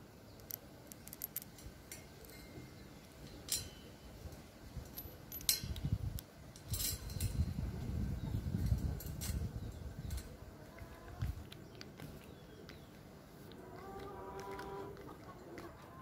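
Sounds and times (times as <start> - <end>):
light metallic clinks: 0.4 - 7.6.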